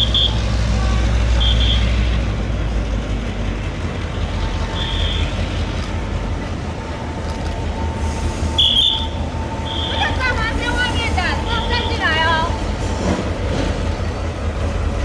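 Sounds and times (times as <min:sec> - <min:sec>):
train rumbling on track: 0:00.0 - 0:15.0.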